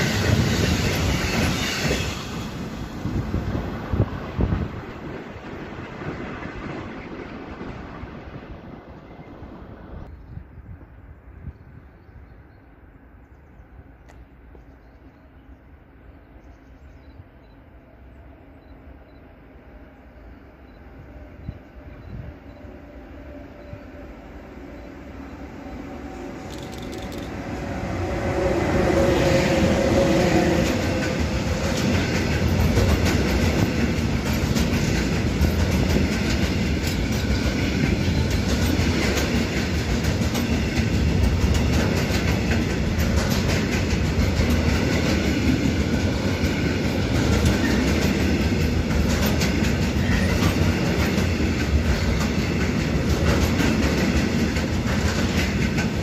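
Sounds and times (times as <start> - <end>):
electric locomotive whine: 0.0 - 56.0
freight train rumble: 0.0 - 56.0
wheels clacking over rail joints: 30.5 - 56.0.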